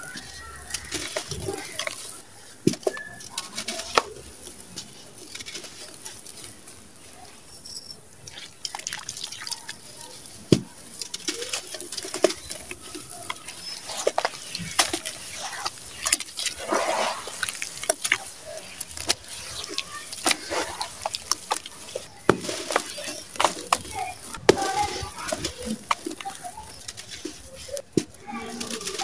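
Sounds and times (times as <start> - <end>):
water splashing and dripping: 0.0 - 7.3, 8.1 - 29.0
wet sand crunching by hand: 8.2 - 29.0.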